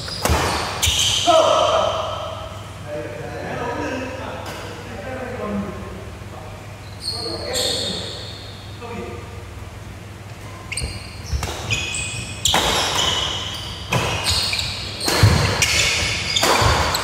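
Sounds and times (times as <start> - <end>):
shoes squeaking on floor: 0.0 - 1.3, 6.8 - 8.8, 10.4 - 17.0
racket hitting shuttlecock: 15.0 - 17.0.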